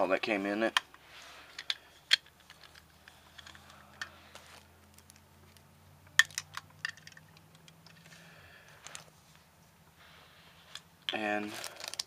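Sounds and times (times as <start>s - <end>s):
plastic toy parts clicking and clattering: 0.7s - 4.2s, 4.9s - 8.2s, 10.7s - 12.0s.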